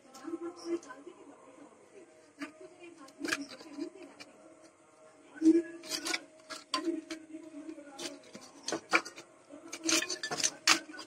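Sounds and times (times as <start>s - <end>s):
handling small plastic parts: 5.5s - 11.0s.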